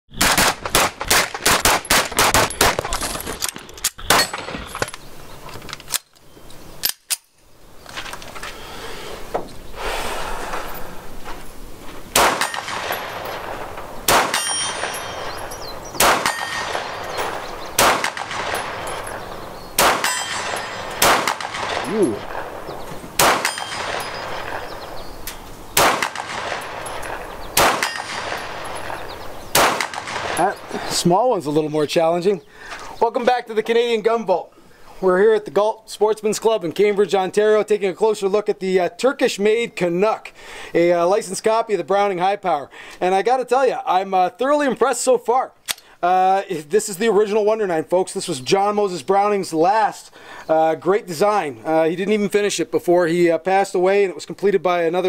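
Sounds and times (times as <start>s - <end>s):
handgun shots: 0.1s - 3.0s, 12.2s - 22.5s, 23.2s - 24.8s, 25.8s - 30.6s
steel target ringing ping: 14.3s - 17.5s.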